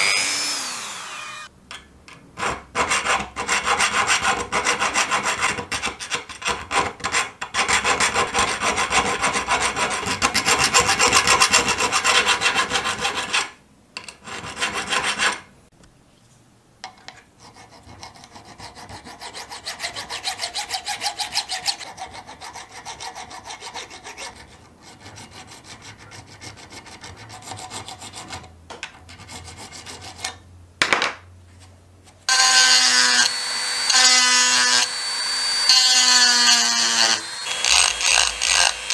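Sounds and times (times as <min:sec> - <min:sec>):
rotary tool whining: 0:00.0 - 0:01.5, 0:32.3 - 0:38.9
file rasping on metal: 0:02.4 - 0:13.6, 0:14.2 - 0:15.5, 0:17.4 - 0:28.5, 0:29.1 - 0:30.4, 0:32.3 - 0:38.9.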